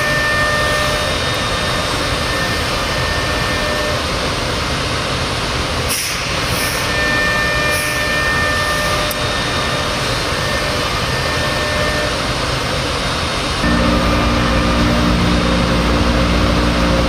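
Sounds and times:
faint high whine: 0.0s - 4.0s, 13.6s - 17.0s
cnc router milling: 0.0s - 17.0s.

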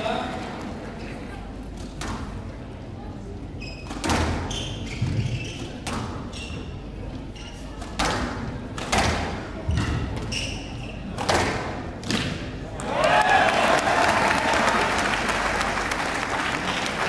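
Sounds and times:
shoes squeaking on wooden floor: 3.6s - 7.6s, 10.2s - 11.1s
squash ball hitting rackets and walls: 3.8s - 6.6s, 7.8s - 12.6s.

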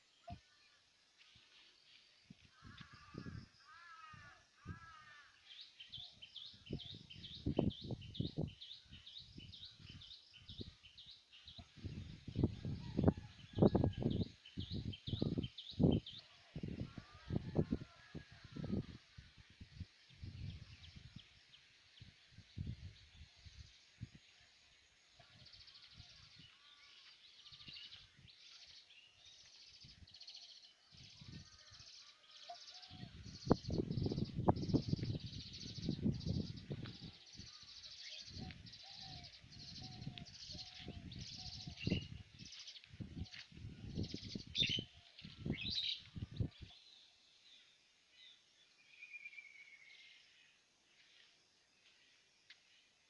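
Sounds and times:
birds chirping: 22.6s - 51.3s.

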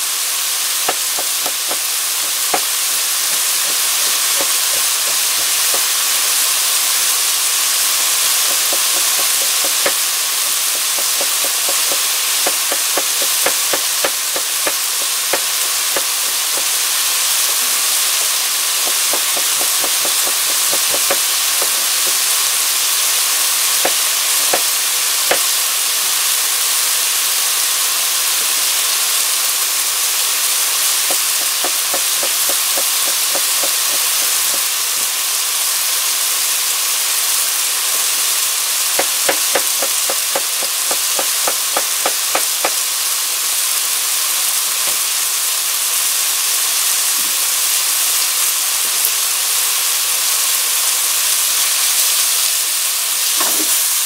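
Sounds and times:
stir-fry sizzling in a pan: 0.0s - 54.0s
rapid crackling pops: 0.8s - 25.6s, 39.0s - 42.9s.

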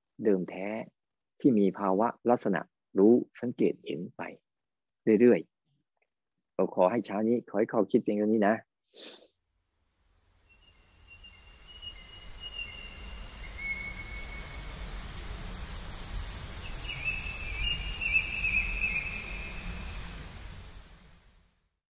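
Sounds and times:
high insect chirp pulsing: 10.1s - 21.5s
whistled bird notes: 10.4s - 14.6s, 15.2s - 19.9s.

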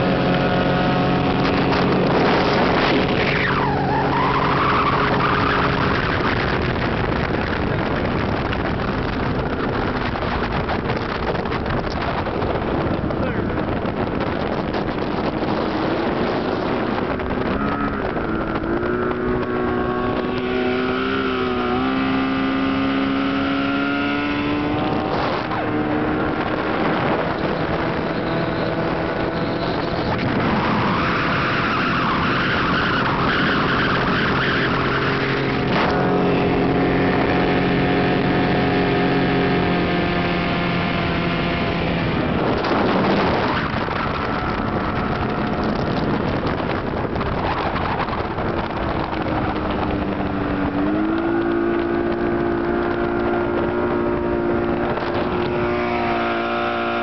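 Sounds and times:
outboard motor revving: 0.0s - 57.0s.

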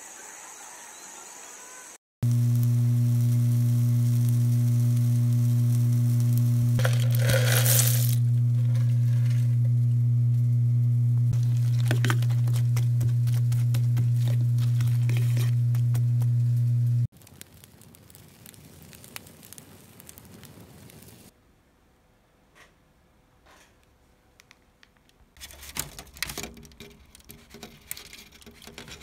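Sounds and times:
steady low hum: 2.2s - 17.1s
cooking crackling and clicks: 2.2s - 21.3s, 24.4s - 29.0s.

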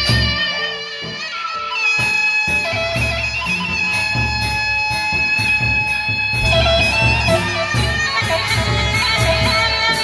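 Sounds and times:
cymbals: 0.0s - 10.0s
large drums: 2.0s - 10.0s.

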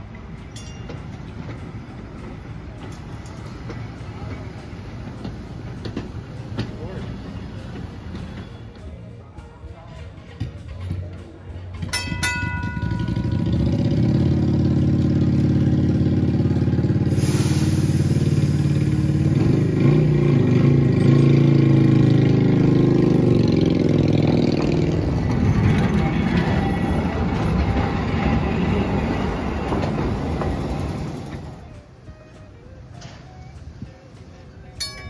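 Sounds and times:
trolley gong ding: 0.0s - 9.0s, 11.8s - 17.2s, 19.8s - 28.8s, 33.0s - 35.0s
sudden hiss: 17.0s - 18.8s.

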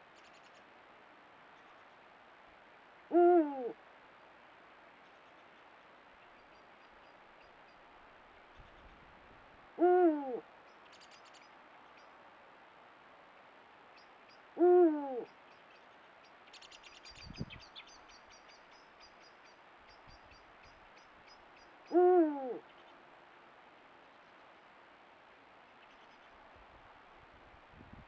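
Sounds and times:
owl hooting: 3.1s - 3.8s, 9.8s - 10.5s, 14.6s - 15.4s, 21.8s - 22.8s.

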